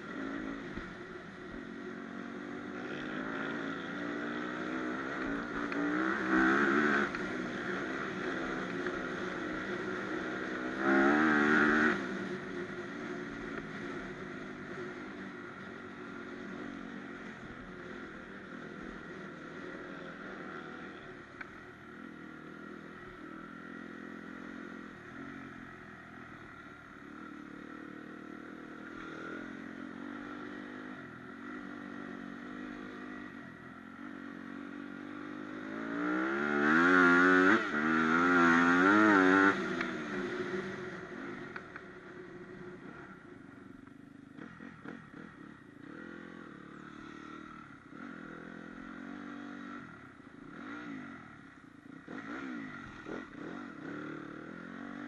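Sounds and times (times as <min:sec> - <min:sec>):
dirt bike engine revving: 0:02.2 - 0:12.5, 0:34.0 - 0:41.6, 0:44.4 - 0:51.3, 0:52.0 - 0:55.0.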